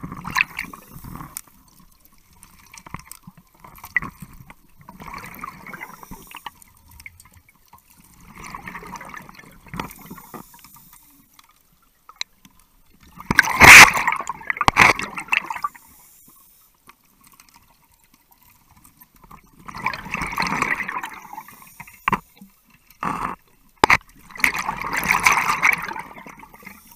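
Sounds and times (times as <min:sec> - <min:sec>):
exhaled bubbles: 0:03.9 - 0:06.2, 0:08.2 - 0:10.1, 0:19.6 - 0:21.5, 0:24.3 - 0:26.8
diver breathing through regulator: 0:05.7 - 0:06.8.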